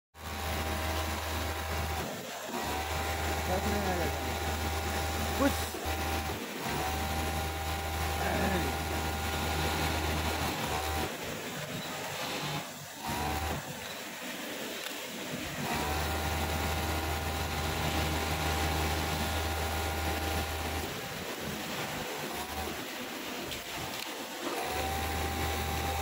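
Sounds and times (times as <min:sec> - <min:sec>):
sewing machine motor running: 0:00.2 - 0:14.1, 0:15.4 - 0:26.0.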